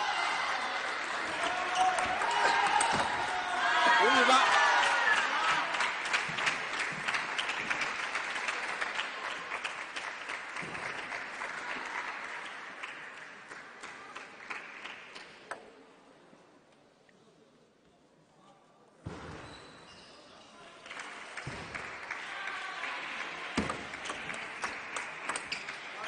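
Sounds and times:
audience applause: 0.0 - 15.2, 20.8 - 26.0.

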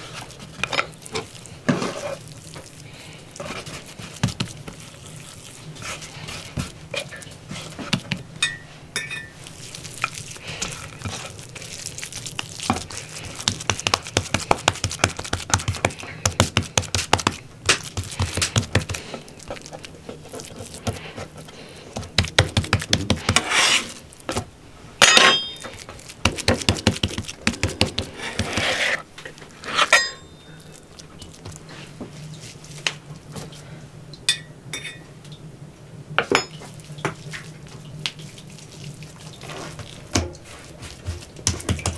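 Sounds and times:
hands slapping raw meat: 12.3 - 19.0, 22.0 - 23.4.

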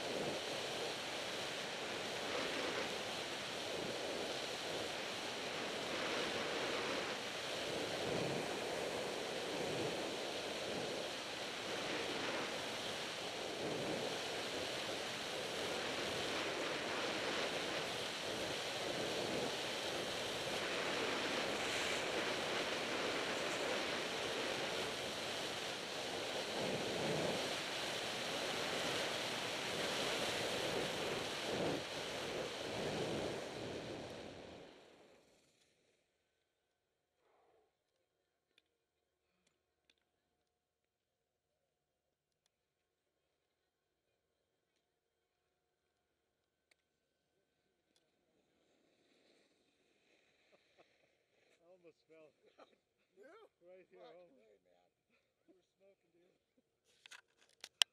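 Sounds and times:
wind buffeting microphone: 0.0 - 34.7
skis sliding over snow: 0.0 - 35.8.

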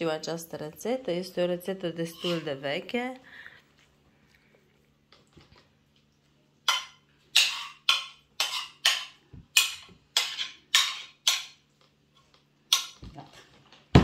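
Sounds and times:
metal spoon scraping a china plate: 2.0 - 2.6, 6.7 - 11.5.

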